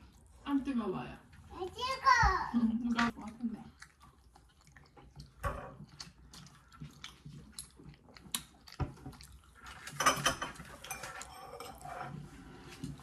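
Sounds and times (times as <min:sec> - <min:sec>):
tableware clatter: 0:09.8 - 0:12.3.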